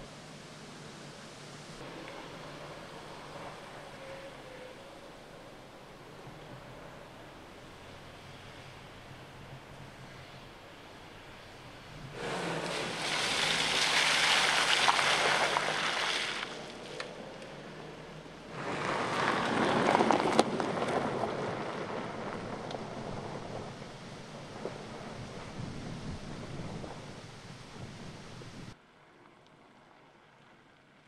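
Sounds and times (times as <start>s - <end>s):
tyre noise on mud and gravel: 12.1s - 17.0s, 18.5s - 23.6s.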